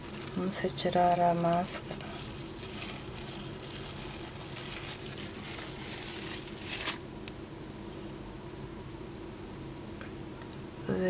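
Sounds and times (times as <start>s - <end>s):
plastic cling film crinkling: 0.0s - 7.5s.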